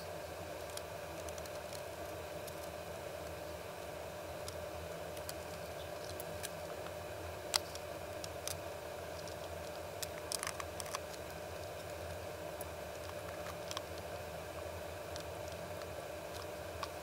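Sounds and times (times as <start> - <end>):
steady low hum: 0.0 - 17.0
small parts clicking and tapping: 4.4 - 6.9, 7.5 - 14.0, 15.1 - 17.0.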